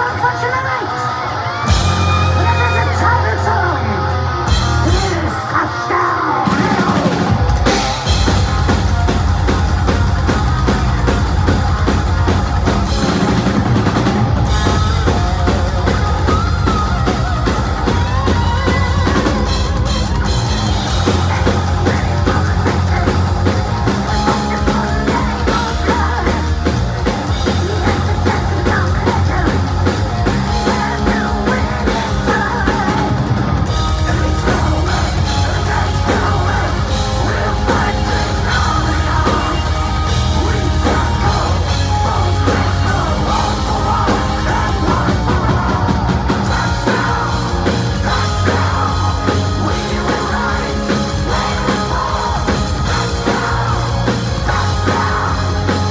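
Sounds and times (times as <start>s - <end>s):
heavy metal band playing live: 0.0s - 55.9s
person singing: 14.5s - 20.2s, 20.9s - 55.9s.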